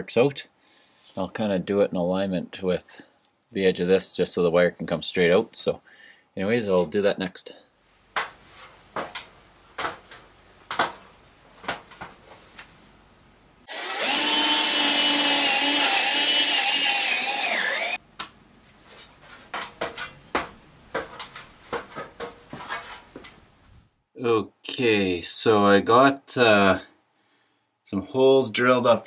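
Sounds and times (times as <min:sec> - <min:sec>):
cordless drill boring into wood: 0:13.7 - 0:18.0.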